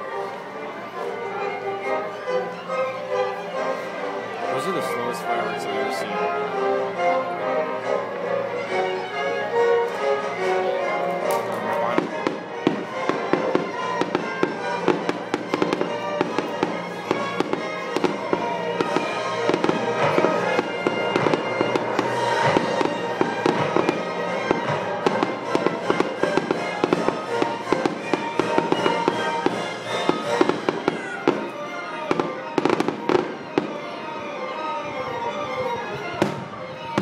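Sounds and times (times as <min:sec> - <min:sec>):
orchestra playing sustained music: 0:00.0 - 0:37.0
fireworks bangs and crackles: 0:11.2 - 0:33.9, 0:36.1 - 0:37.0.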